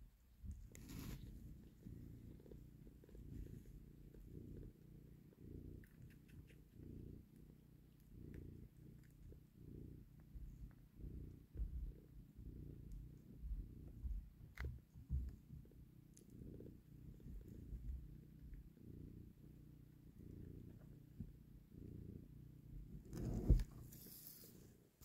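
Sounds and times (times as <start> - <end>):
cat purring: 0.0 - 25.0
faint soft clicks: 5.8 - 6.7.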